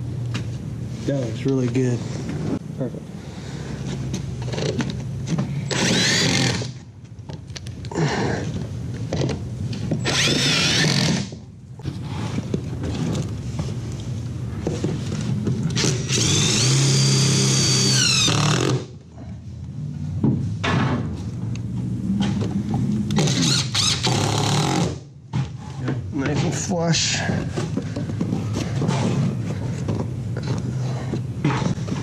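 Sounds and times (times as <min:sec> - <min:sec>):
cordless power driver whirring: 0:05.7 - 0:06.7, 0:10.0 - 0:11.3, 0:15.7 - 0:18.8.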